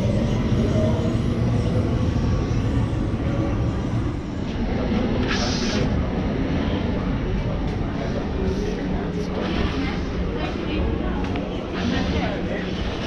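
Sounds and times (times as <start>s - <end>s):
metro train rumbling: 0.0s - 13.0s.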